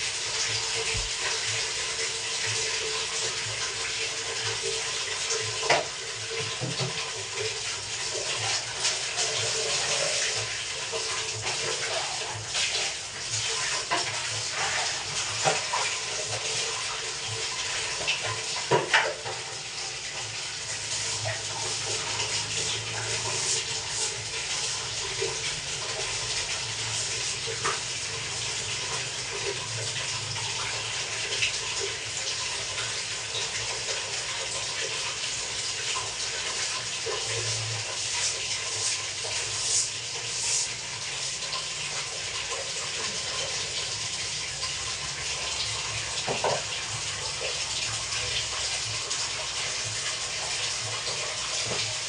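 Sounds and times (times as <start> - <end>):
water running from a tap: 0.0 - 52.0
knocks and clatters of cleaning: 0.8 - 1.6, 5.4 - 19.6, 46.2 - 46.8.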